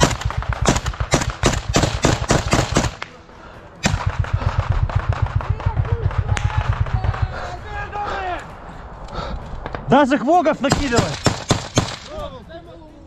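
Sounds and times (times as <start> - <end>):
gunshots: 0.0 - 3.2, 3.8 - 7.9, 10.6 - 12.2
fast low thumping: 3.9 - 7.9.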